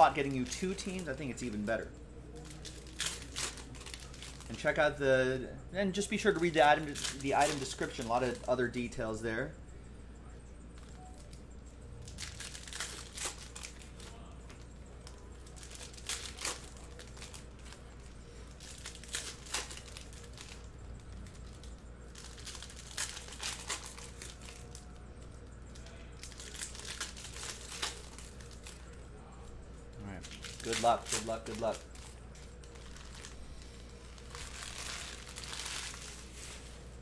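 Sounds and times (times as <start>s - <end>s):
foil wrappers crinkling and tearing: 0.0s - 4.9s, 5.9s - 8.9s, 12.0s - 25.0s, 25.7s - 29.0s, 30.2s - 36.9s.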